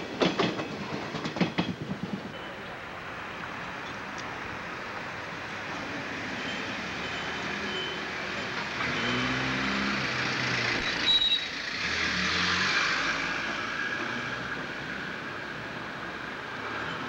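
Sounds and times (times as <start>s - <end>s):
short high squeal: 10.8s - 11.5s.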